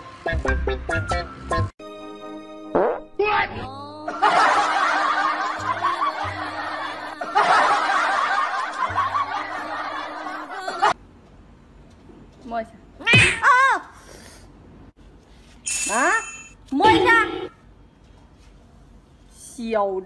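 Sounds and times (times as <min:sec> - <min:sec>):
music: 0:00.0 - 0:10.4
crowd laughing: 0:04.1 - 0:11.0.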